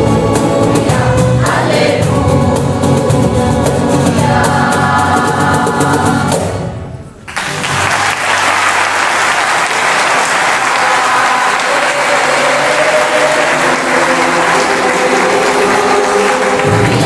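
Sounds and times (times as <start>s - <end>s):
choir with acoustic guitars: 0.0s - 6.7s, 10.5s - 17.0s
audience applauding: 7.3s - 17.0s.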